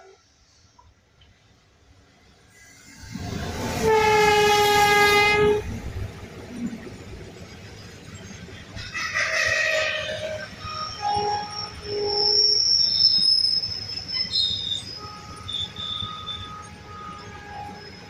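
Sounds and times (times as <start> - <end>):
train wagons rumbling: 2.7 - 18.0
train wheels squealing: 7.7 - 18.0.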